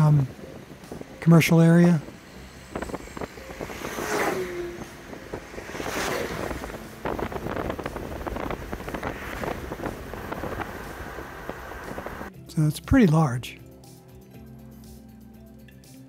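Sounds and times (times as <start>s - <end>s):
road and wind noise in car: 0.0s - 12.3s.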